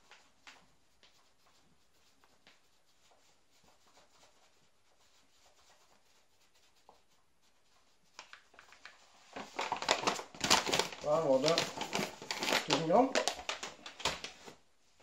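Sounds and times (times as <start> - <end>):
paper bag rustling: 8.6 - 14.6.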